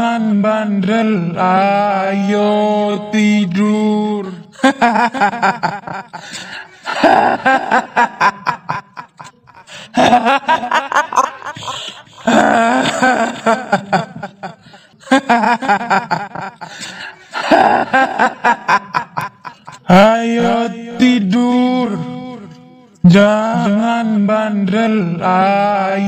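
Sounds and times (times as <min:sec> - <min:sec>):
woman cackling laugh: 0:04.6 - 0:16.7, 0:17.3 - 0:19.9.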